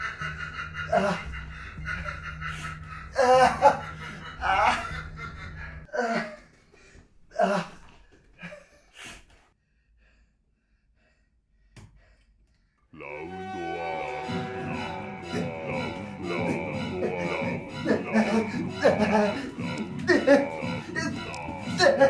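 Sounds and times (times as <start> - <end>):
person gasping and laughing: 0.0 - 9.3, 14.2 - 22.0.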